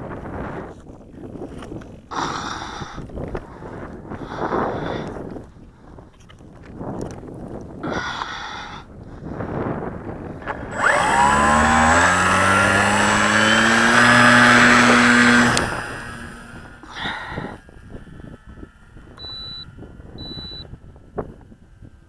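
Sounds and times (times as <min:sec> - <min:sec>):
rush of wind: 0:00.0 - 0:22.0
electric propeller buzzing: 0:09.9 - 0:22.0.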